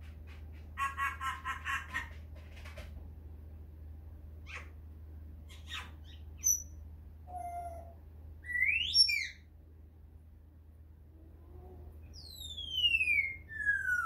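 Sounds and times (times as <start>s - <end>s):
parrot chirping and whistling: 5.5s - 9.4s, 12.1s - 14.0s.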